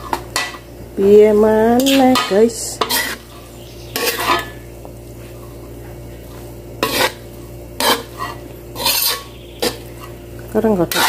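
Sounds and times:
spatula scraping a metal wok: 1.7 - 4.7, 6.2 - 10.2, 10.8 - 11.0.

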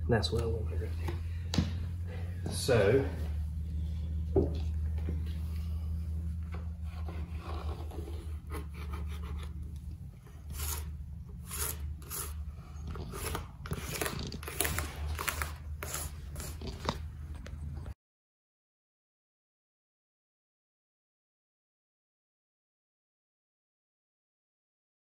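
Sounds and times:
steady low hum: 0.0 - 18.0
pencil scratching on plywood: 6.7 - 17.0.

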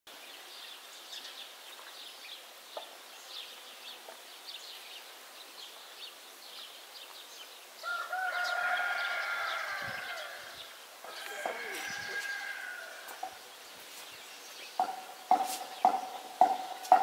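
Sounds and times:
small birds chirping: 0.1 - 17.0
rooster crowing: 7.8 - 13.4.

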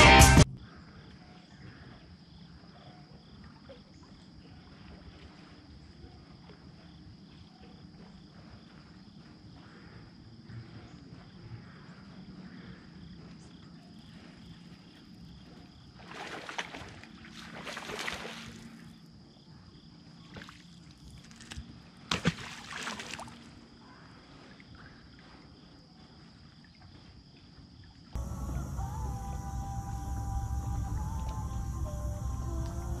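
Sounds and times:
fish splashing in water: 16.0 - 18.7, 20.3 - 23.5
faint steady hum: 28.2 - 33.0.

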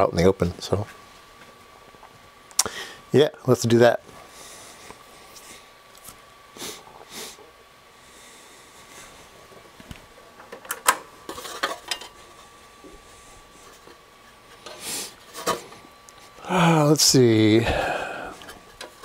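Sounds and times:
metal cover clattering: 10.5 - 12.2.

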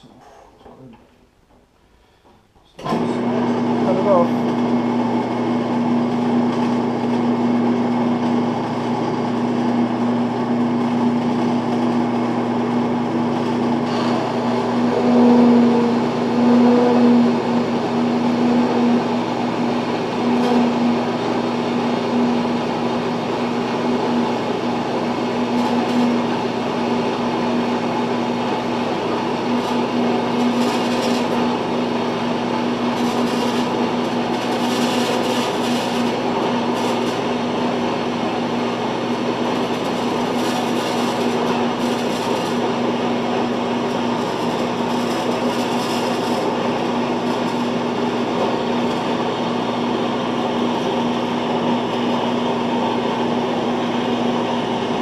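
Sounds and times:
bandsaw cutting metal: 13.3 - 52.7.

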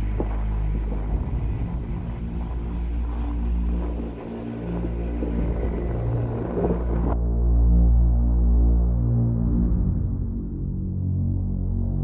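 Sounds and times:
ship engine rumble: 0.0 - 7.2
water noise: 0.0 - 7.2
wind: 0.0 - 10.7.

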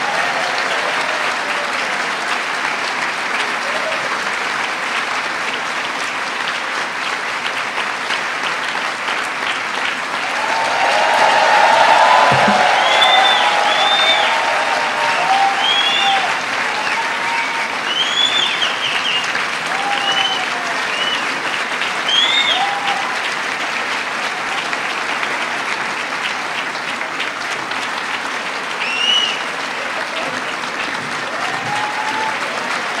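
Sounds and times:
audience cheering: 0.0 - 4.5, 10.1 - 25.4, 28.7 - 33.0
audience applauding: 0.0 - 33.0.

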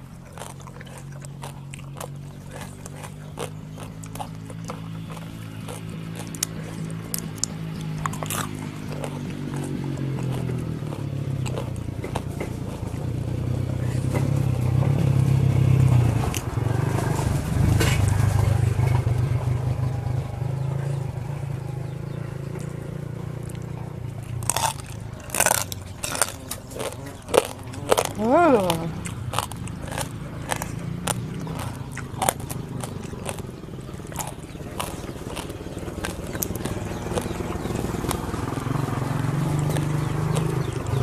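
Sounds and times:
low droning hum: 0.0 - 16.3
crunchy biting and chewing: 0.0 - 20.2, 20.8 - 41.0.

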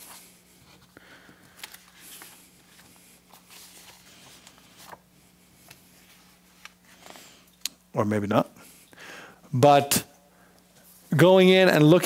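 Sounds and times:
paper rustling: 0.0 - 7.2
low electrical hum: 0.0 - 12.0.

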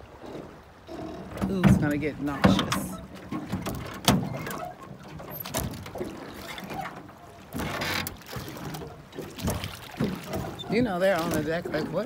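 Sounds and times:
oar splashing through water: 0.0 - 12.0
oars knocking: 0.3 - 12.0.

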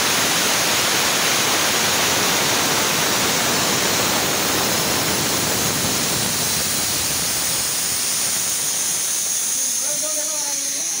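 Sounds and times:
air valve hissing: 0.0 - 11.0.

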